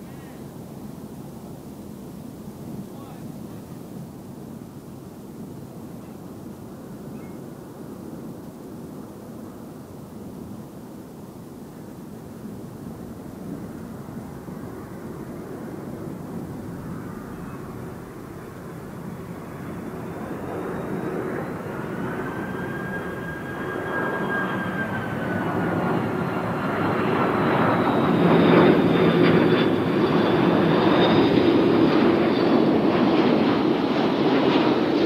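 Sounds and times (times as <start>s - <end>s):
jet engines on approach: 0.0s - 35.0s.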